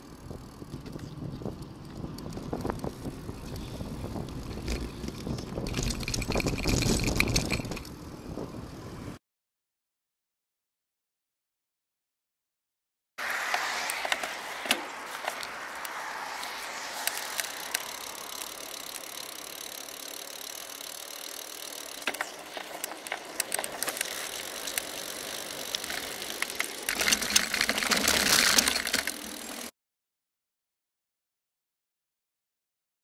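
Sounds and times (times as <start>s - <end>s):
sharp rattling clicks from bike: 0.0s - 8.2s, 13.4s - 29.7s
bicycle road and wind noise: 0.0s - 9.2s, 13.2s - 29.7s.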